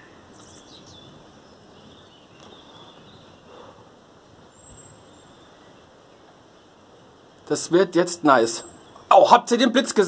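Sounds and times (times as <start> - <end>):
faint bird chirps: 0.0 - 3.9, 4.5 - 7.5.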